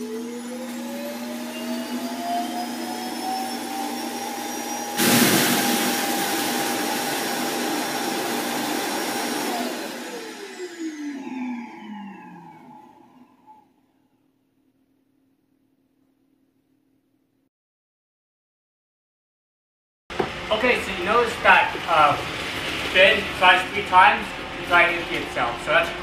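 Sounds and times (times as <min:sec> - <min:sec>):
motor whine: 0:00.0 - 0:14.2
loud rush of air: 0:05.0 - 0:06.4.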